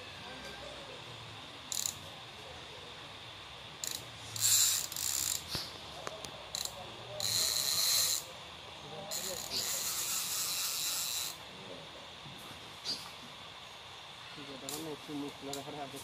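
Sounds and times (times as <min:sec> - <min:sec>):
fishing reel clicker buzzing: 0:01.7 - 0:02.0, 0:03.8 - 0:05.6, 0:06.5 - 0:08.3, 0:09.1 - 0:11.4.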